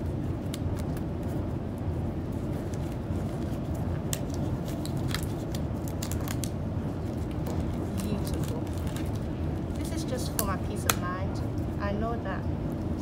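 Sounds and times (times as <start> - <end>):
low background rumble: 0.0 - 13.0
latex gloves snapping: 0.4 - 1.1, 4.0 - 6.6.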